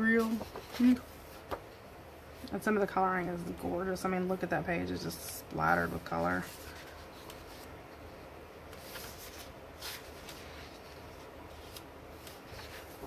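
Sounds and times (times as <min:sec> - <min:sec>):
low steady hum: 0:00.0 - 0:13.0
paper rustling: 0:00.1 - 0:01.8, 0:05.0 - 0:08.1, 0:08.7 - 0:13.0
book pages flipping: 0:00.2 - 0:01.8, 0:05.2 - 0:13.0.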